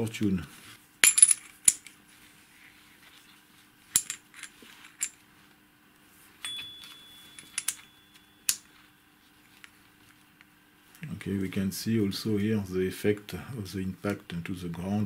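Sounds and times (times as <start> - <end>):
small metal parts clinking: 1.0 - 1.9, 3.9 - 5.2, 6.4 - 8.7
metal piece ringing tone: 6.4 - 8.8.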